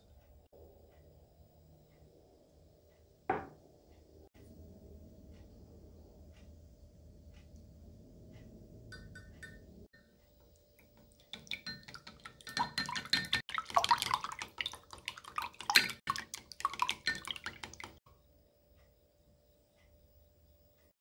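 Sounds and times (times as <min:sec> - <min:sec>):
liquid splashing: 0:11.1 - 0:18.0.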